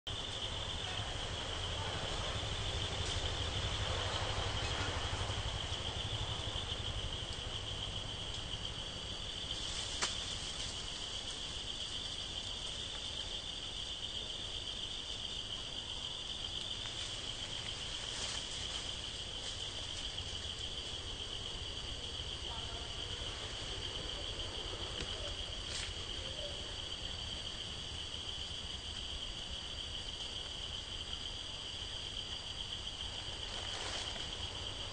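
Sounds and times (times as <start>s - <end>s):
low rumble: 0.1s - 9.7s
fainter higher insect: 0.1s - 34.9s
insects trilling: 0.1s - 34.9s.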